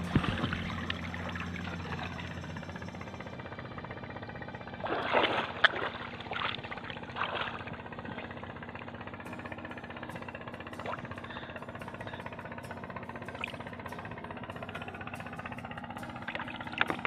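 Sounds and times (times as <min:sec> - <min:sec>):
swimmer splashing: 0:00.0 - 0:02.7, 0:04.5 - 0:09.2, 0:16.2 - 0:17.0.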